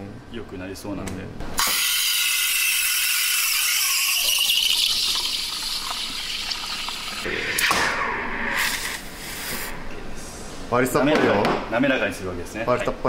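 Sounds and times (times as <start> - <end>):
steam wand hissing in milk: 1.6 - 7.3.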